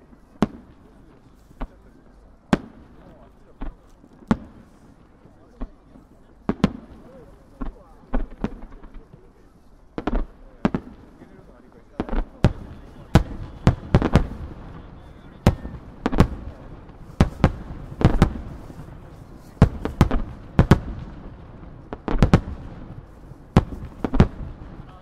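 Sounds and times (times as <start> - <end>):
firework shells bursting: 12.0 - 24.9.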